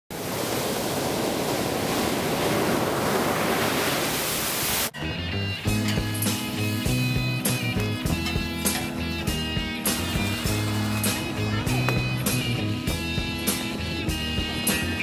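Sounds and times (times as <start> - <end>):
ocean surf breaking: 0.1 - 5.0
music with steady beat: 5.1 - 15.0.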